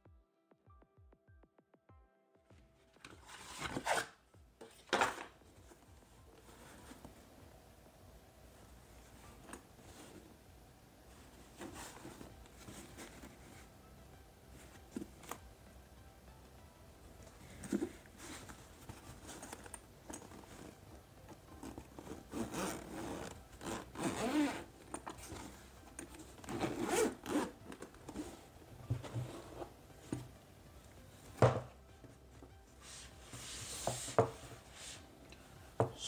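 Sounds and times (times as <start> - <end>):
zipper being unzipped: 3.3 - 4.2, 21.6 - 25.6, 26.2 - 28.5
fabric rubbing: 21.6 - 29.8.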